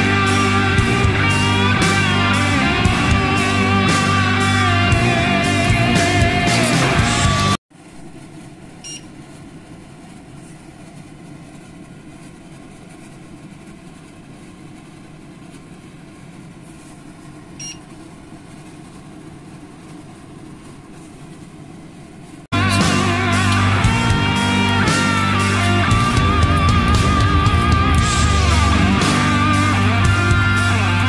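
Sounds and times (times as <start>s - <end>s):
rock music: 0.0s - 7.6s, 22.5s - 31.0s.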